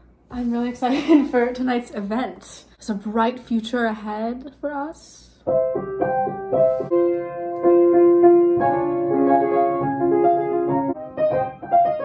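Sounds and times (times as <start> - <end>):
slow piano melody: 5.4 - 12.0.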